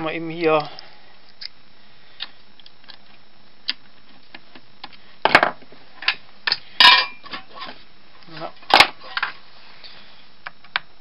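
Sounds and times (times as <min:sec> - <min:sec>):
metal tools clattering: 0:06.8 - 0:07.7.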